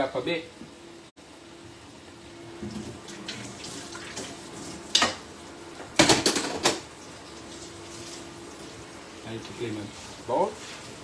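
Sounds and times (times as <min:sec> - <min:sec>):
tap water running into sink: 0:02.6 - 0:08.2
metal pans clanking: 0:06.0 - 0:06.9.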